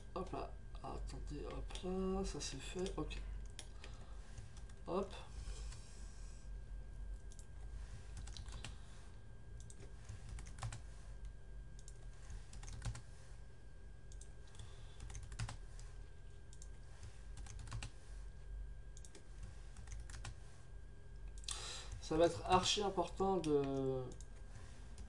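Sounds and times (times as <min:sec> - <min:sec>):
low electrical hum: 0:00.0 - 0:25.0
computer keyboard keystrokes: 0:07.2 - 0:07.5, 0:08.2 - 0:08.7, 0:09.6 - 0:10.8, 0:11.8 - 0:13.0, 0:14.1 - 0:15.6, 0:16.5 - 0:16.8, 0:17.4 - 0:17.9, 0:18.9 - 0:20.4.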